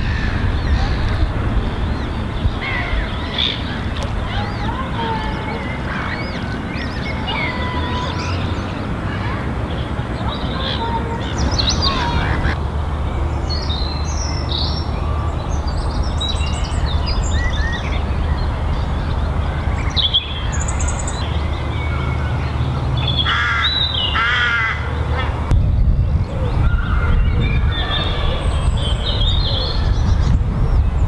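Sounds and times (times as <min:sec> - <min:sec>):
steady low rumble: 0:00.0 - 0:24.1
small birds chirping and trilling: 0:00.0 - 0:31.0.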